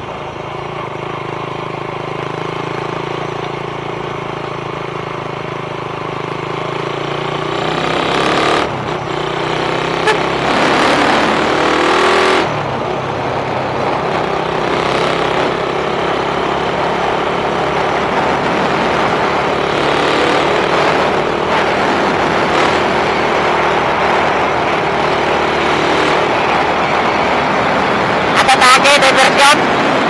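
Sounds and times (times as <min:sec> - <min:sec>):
engine running steadily: 0:00.0 - 0:30.0.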